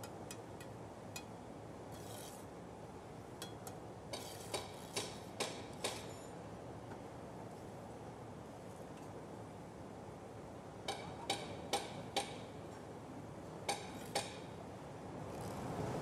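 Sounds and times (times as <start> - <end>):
faint steady background noise: 0.0 - 16.0.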